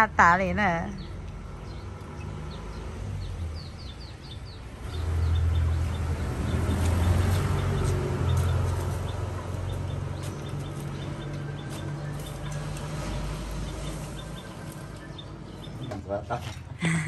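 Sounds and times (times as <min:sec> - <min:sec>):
small birds chirping: 0:00.0 - 0:17.0
vehicle engine rumble: 0:00.0 - 0:17.0.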